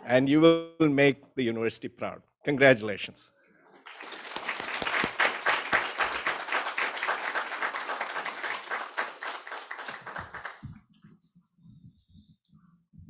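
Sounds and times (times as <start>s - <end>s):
audience applauding: 3.8s - 10.7s.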